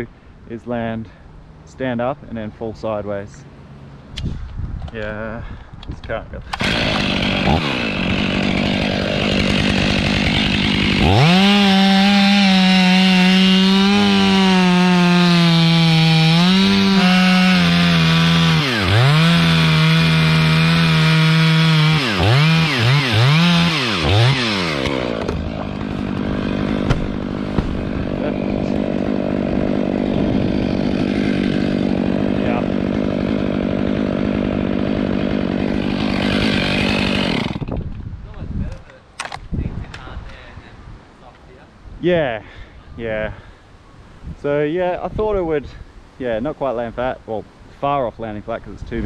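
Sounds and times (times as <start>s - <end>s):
chainsaw cutting wood: 6.5s - 38.0s.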